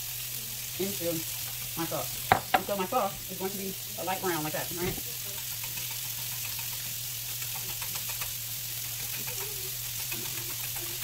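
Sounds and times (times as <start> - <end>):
chicken sizzling on griddle: 0.0 - 11.0
whisk clicking in saucepan: 5.3 - 11.0.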